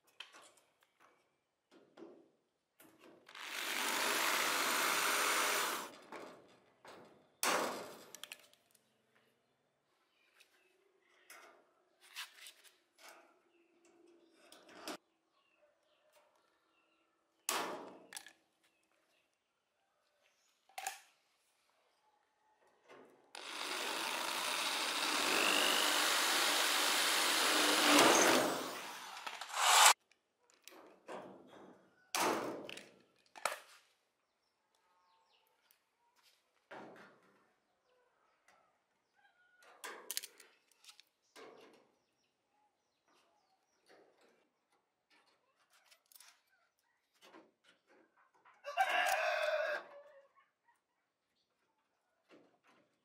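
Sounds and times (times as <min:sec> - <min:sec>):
cordless drill boring into metal: 0:03.3 - 0:05.9, 0:23.4 - 0:30.0
rooster crowing: 0:48.6 - 0:50.2.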